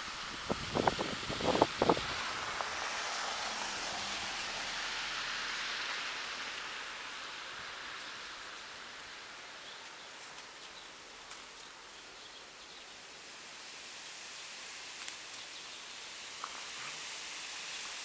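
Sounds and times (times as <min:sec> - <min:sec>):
outdoor background hiss: 0:00.0 - 0:18.0
faint ticks: 0:15.0 - 0:15.5, 0:16.4 - 0:16.8.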